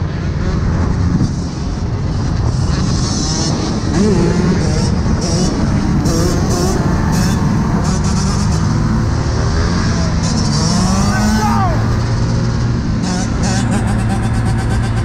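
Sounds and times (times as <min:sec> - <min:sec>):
wind rumble on microphone: 0:00.0 - 0:10.6
dirt bike engines revving: 0:00.0 - 0:15.0.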